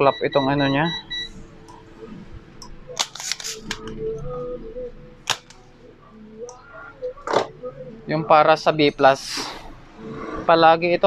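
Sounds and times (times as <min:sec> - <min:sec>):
desoldering pump snapping: 0:05.2 - 0:05.6.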